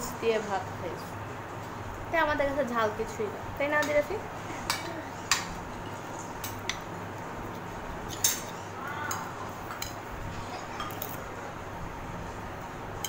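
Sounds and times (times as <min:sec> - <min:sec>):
steady low hum: 0:00.0 - 0:13.0
cutlery clinking on plates: 0:08.1 - 0:10.0, 0:10.7 - 0:11.2.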